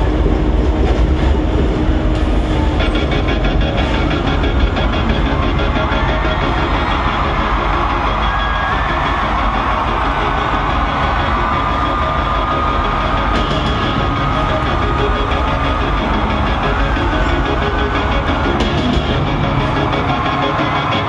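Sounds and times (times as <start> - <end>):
crowd cheering and screaming: 2.1 - 21.0.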